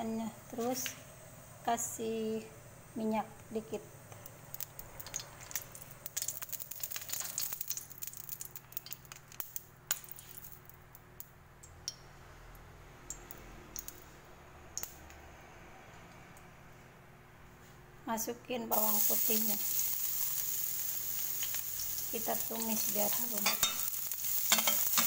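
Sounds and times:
oil crackling and popping in wok: 4.1s - 12.0s, 13.0s - 14.1s, 14.8s - 15.2s, 18.7s - 25.0s.

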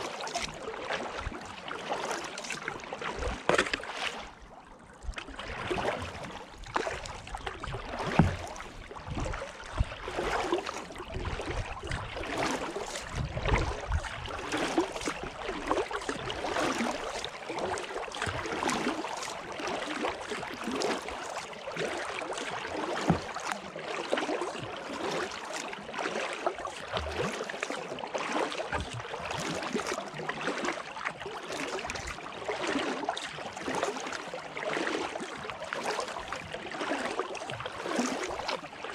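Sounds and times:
paddle splashing in water: 0.0s - 38.9s
water dripping off paddle: 22.9s - 24.3s.

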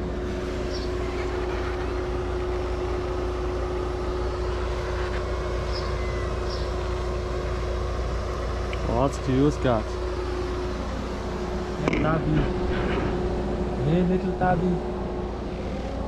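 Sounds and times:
steady mechanical hum: 0.0s - 16.0s.

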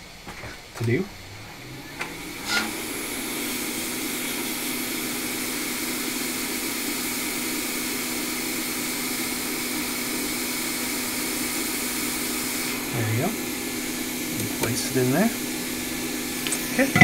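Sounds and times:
hot air blower rushing: 0.6s - 17.0s.

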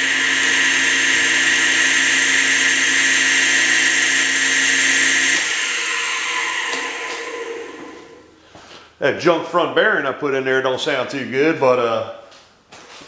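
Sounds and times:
electric motor humming and whining: 0.0s - 8.3s
motor winding down: 0.0s - 8.4s.

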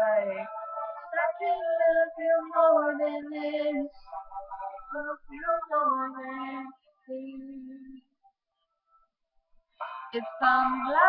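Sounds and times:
girl singing unaccompanied: 0.0s - 8.0s, 10.2s - 11.0s.

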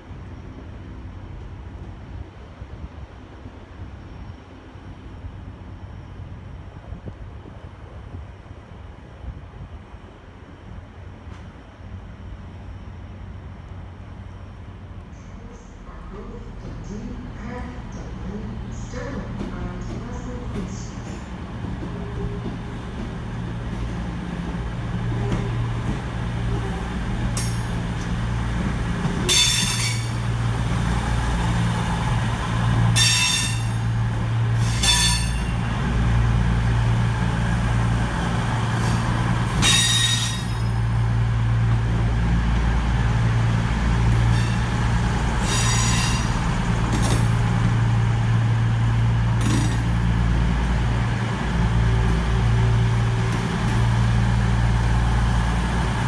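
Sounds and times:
train diesel engines humming: 0.0s - 56.0s
sharp high-pitched brake squeals: 29.3s - 30.2s, 33.0s - 33.8s, 34.6s - 35.5s, 39.6s - 40.7s, 45.4s - 46.4s.

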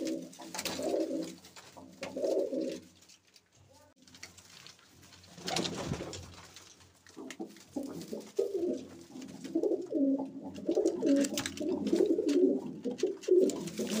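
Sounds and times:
pigeons cooing: 0.0s - 2.9s, 7.2s - 14.0s.

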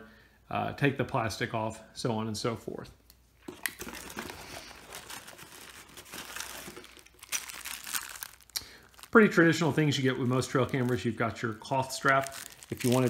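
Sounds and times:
cardboard packaging crinkling: 3.5s - 13.0s
plastic bag crinkling: 3.5s - 13.0s.

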